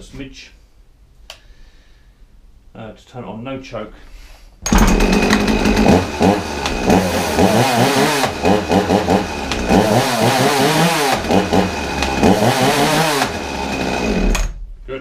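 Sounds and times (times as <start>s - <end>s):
chainsaw engine revving: 4.7s - 14.6s.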